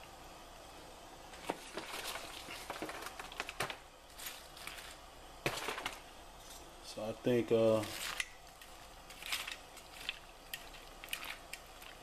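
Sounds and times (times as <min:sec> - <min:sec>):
pot of water clicking and crackling: 0:01.4 - 0:06.1, 0:07.9 - 0:12.0.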